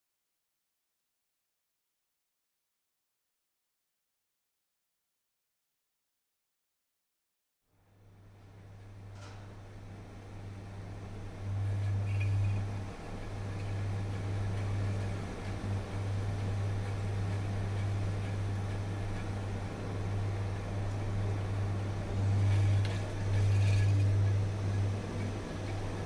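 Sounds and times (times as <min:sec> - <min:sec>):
low electrical hum: 0:07.7 - 0:26.0.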